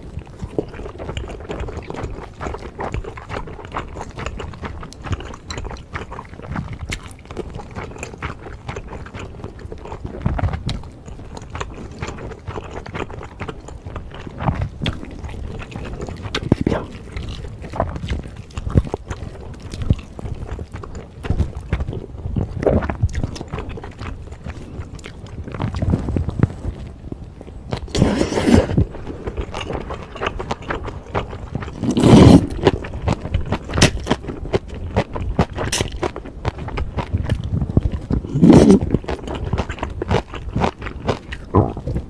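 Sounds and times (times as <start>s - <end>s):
wet chewing and crunching: 0.0s - 42.0s
slurps: 27.9s - 30.3s, 31.7s - 32.8s, 38.1s - 39.8s.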